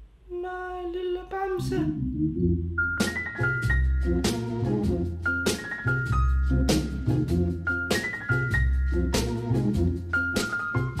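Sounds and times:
background music with steady beat: 0:02.4 - 0:11.0.

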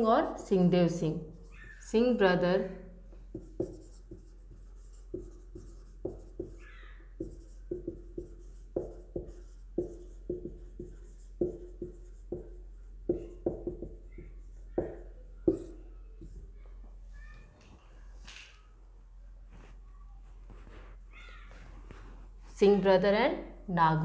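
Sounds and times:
marker writing on whiteboard: 0:00.8 - 0:02.4, 0:03.0 - 0:17.0
marker squeak: 0:01.4 - 0:02.0, 0:06.3 - 0:07.5.

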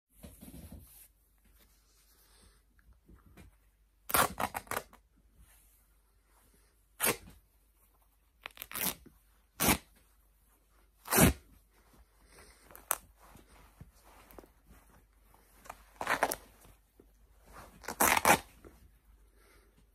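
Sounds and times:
cloth rustling: 0:00.1 - 0:19.9
fabric ripping: 0:04.1 - 0:05.0, 0:07.0 - 0:07.4, 0:08.4 - 0:10.0, 0:11.0 - 0:11.5, 0:15.6 - 0:16.7, 0:17.6 - 0:18.6.

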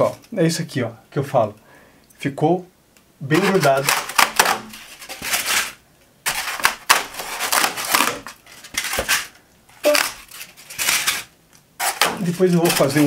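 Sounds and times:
foam board crunching and squeaking: 0:03.3 - 0:13.0.

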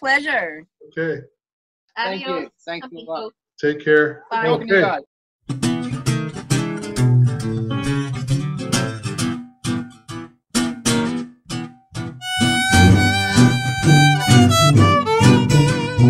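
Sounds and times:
acoustic guitar strumming chords: 0:05.5 - 0:16.0
violin sliding melody: 0:12.2 - 0:16.0.

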